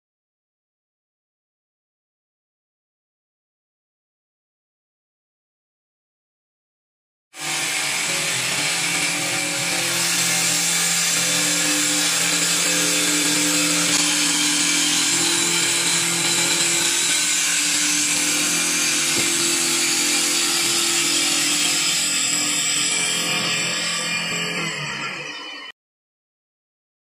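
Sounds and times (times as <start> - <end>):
lathe cutter shaving wood: 7.4 - 25.7
machine humming: 7.4 - 25.7.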